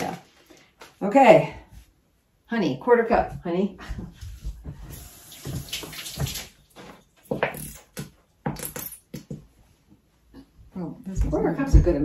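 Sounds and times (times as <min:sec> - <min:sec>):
tap water running into sink: 0:04.9 - 0:06.6.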